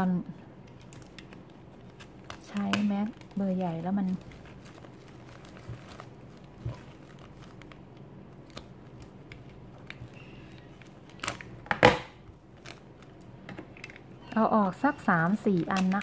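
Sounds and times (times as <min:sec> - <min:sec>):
cloth rustling: 0:01.3 - 0:09.0.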